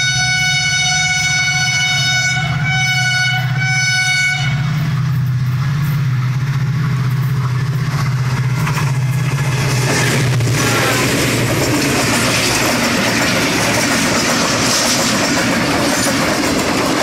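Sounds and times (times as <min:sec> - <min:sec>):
locomotive air horn: 0:00.0 - 0:04.8, 0:10.6 - 0:11.1
train wheels on rails: 0:00.0 - 0:17.0.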